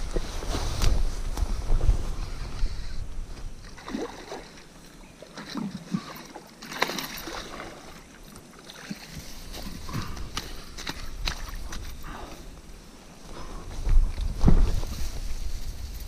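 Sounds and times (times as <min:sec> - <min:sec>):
wind rumble on microphone: 0:00.0 - 0:03.8, 0:09.2 - 0:16.0
small water sounds: 0:03.6 - 0:12.4.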